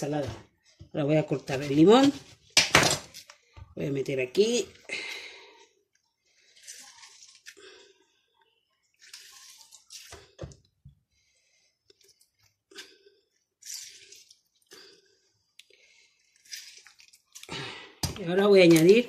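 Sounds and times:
wet squeezing of lemons: 6.0 - 8.1, 8.8 - 10.4, 11.9 - 17.6.

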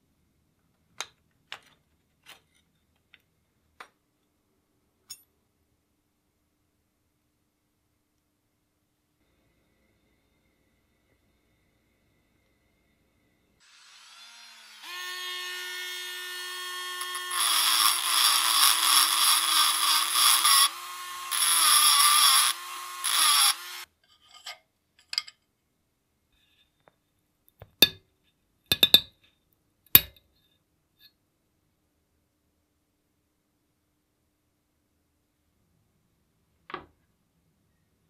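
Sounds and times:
handheld power tool motor: 13.6 - 23.9.

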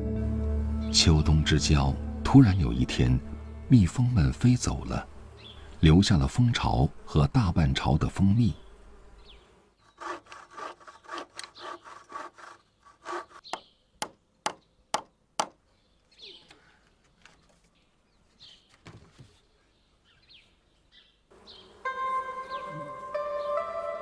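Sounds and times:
hand saw cutting wood: 9.8 - 13.5
hammer hitting nail into wood: 13.5 - 15.6.

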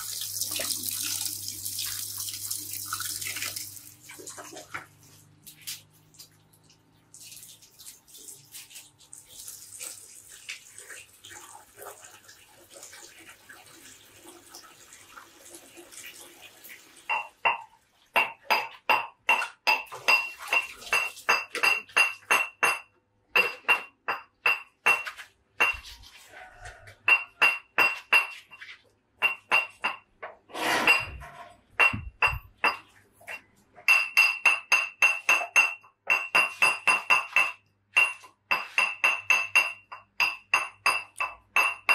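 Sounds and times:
tap water running: 0.0 - 18.8, 19.4 - 22.2.

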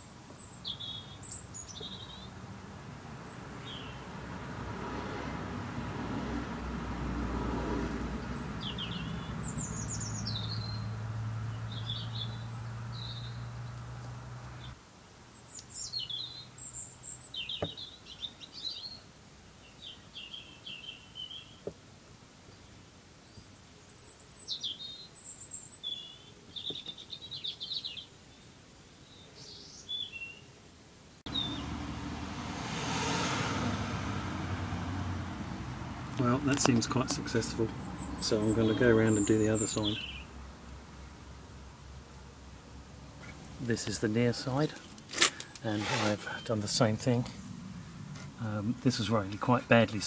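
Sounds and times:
small birds chirping and singing: 0.0 - 2.4, 3.2 - 4.0, 8.1 - 21.7, 22.4 - 30.6, 31.3 - 31.8, 36.1 - 41.2, 42.2 - 47.4.

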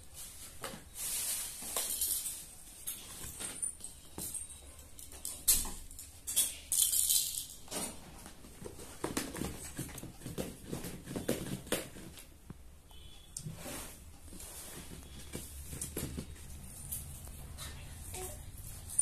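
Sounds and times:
plastic toys rattling in box: 5.1 - 8.2.

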